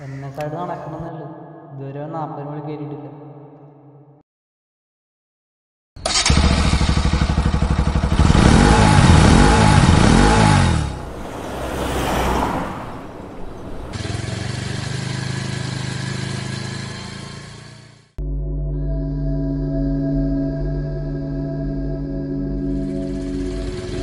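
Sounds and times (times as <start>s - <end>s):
motorcycle engine revving: 6.0s - 18.1s, 22.6s - 24.0s
rushing whoosh: 9.2s - 14.6s.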